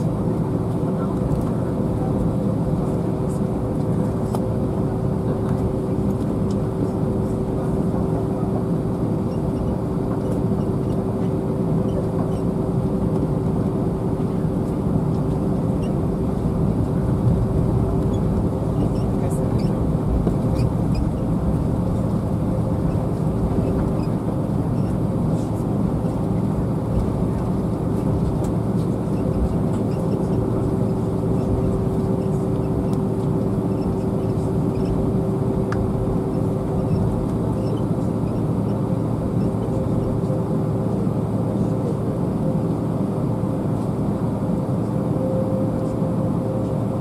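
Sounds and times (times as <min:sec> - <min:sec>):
cabin air noise: 0:00.0 - 0:47.0
jet engines idling: 0:00.0 - 0:47.0.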